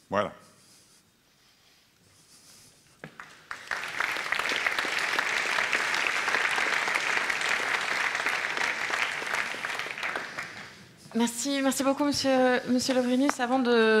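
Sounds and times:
audience applause: 3.0 - 10.9.

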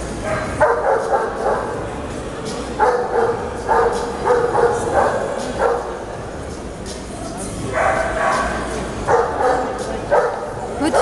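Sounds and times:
dog barking: 0.2 - 1.8, 2.8 - 6.0, 7.7 - 11.0.

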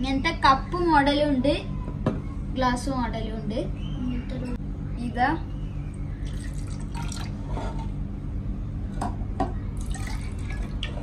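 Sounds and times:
water pouring into glasses: 6.2 - 7.5, 9.8 - 11.0.

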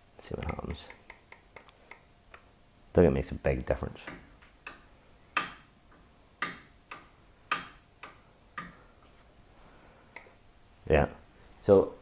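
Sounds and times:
faint clicks: 0.4 - 2.5.

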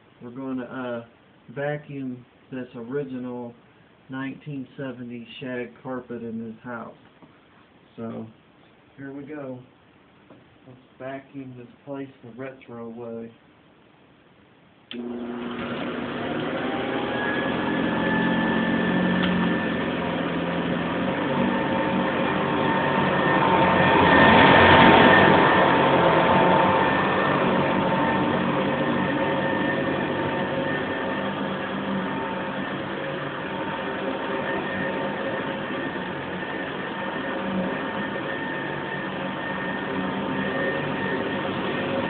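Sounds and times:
upright vacuum cleaner motor whine: 14.9 - 42.0.

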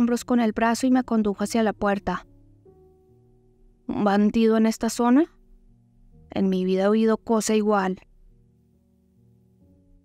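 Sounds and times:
soft background music: 0.0 - 10.0
person narrating: 6.3 - 8.0.

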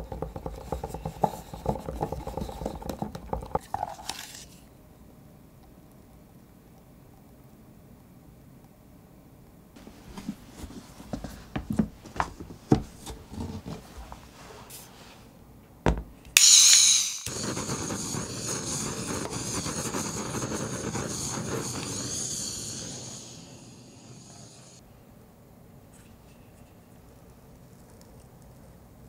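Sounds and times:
containers knocking and clicking: 0.0 - 4.0
gas torch hissing: 16.4 - 24.8.

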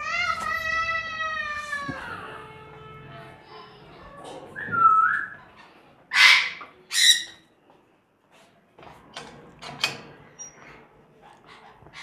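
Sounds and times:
parrot screeches: 6.1 - 7.4.

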